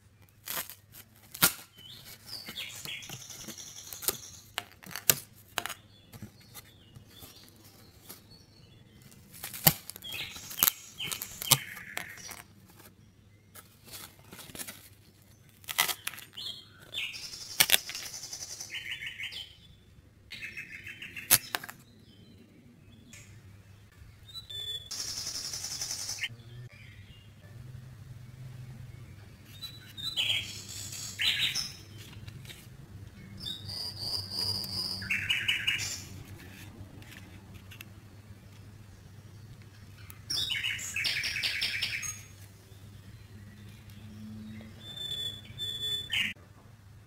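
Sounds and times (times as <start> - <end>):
puzzle pieces snapping out: 21.3 - 21.8.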